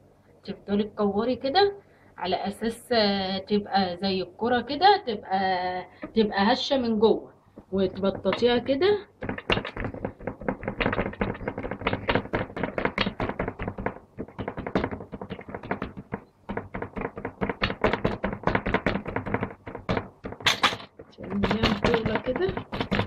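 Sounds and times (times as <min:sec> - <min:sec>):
hand patting dough on wood: 0:07.6 - 0:23.0.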